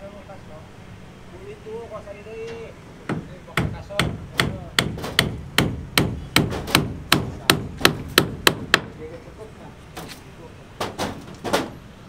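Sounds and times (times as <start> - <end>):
hammer striking wood: 3.1 - 8.9.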